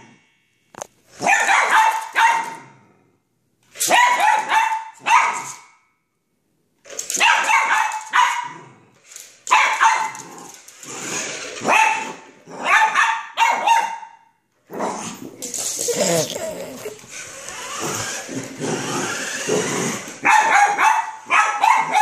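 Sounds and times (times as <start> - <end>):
dog barking: 1.2 - 2.7, 3.9 - 5.6, 7.2 - 8.6, 9.5 - 10.2, 11.6 - 14.2, 20.2 - 22.0.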